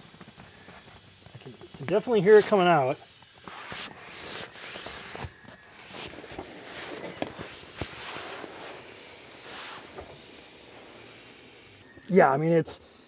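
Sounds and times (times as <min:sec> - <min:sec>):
air hissing out of mattress: 0:00.0 - 0:11.9
fabric rubbing and rustling: 0:03.3 - 0:11.8.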